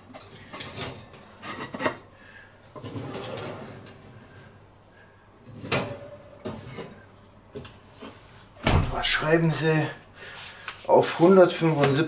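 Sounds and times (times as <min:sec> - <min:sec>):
pot scraping on oven rack: 0:02.8 - 0:04.0.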